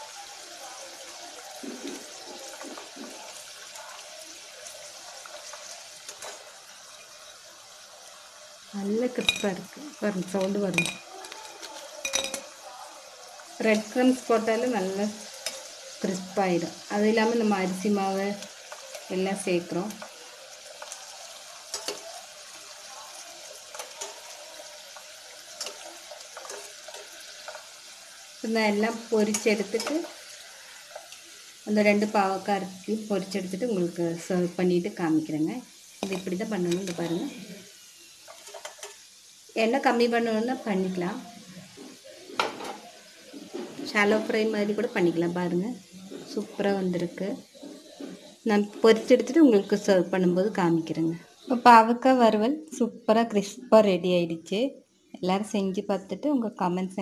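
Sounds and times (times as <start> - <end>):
food sizzling in hot oil: 0.0 - 57.0
steel ladle clinking on pan: 10.4 - 12.5.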